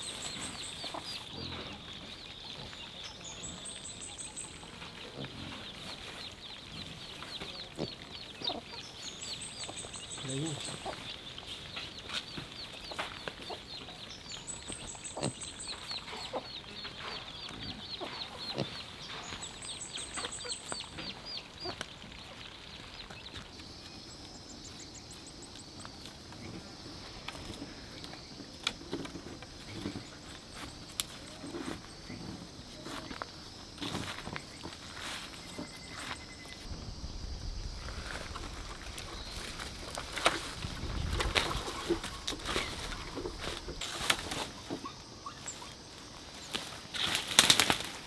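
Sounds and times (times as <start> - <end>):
chicks peeping: 0.0 - 23.6
high insect drone: 23.6 - 48.0.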